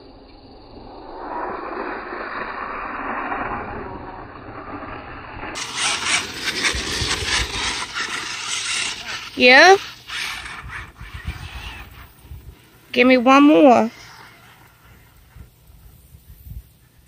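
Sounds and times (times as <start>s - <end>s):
rc truck tyres churning dirt: 5.5s - 15.7s.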